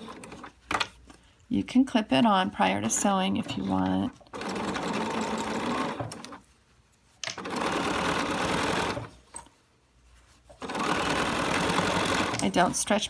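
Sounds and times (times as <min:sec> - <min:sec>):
sewing machine stitching: 0:02.8 - 0:06.4, 0:07.4 - 0:09.1, 0:10.6 - 0:12.7.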